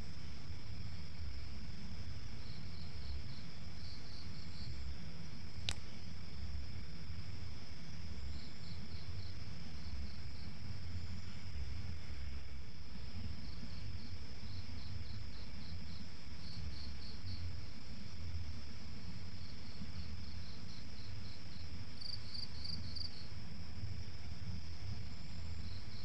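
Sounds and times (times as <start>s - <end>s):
cricket chirping: 0.0s - 26.0s
high cricket trill: 0.0s - 26.0s
low steady rumble: 0.0s - 26.0s.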